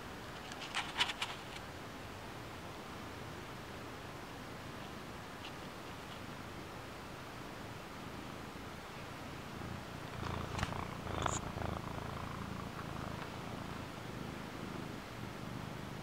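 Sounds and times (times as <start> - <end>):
cat purring: 9.4 - 16.0.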